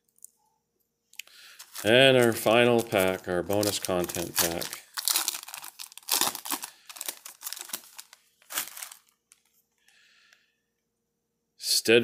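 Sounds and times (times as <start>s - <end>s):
foil wrapper tearing and crinkling: 1.5s - 9.5s.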